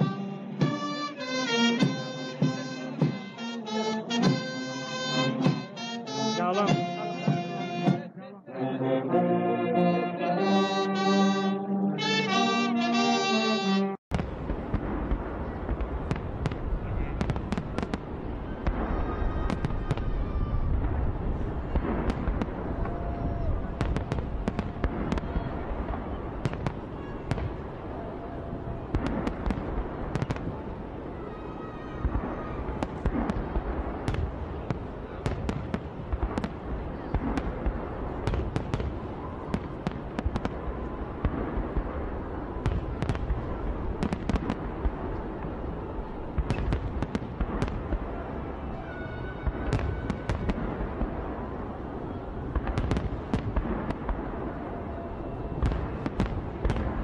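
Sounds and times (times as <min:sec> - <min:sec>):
fireworks banging and crackling: 0:00.0 - 0:08.1, 0:14.1 - 0:57.0.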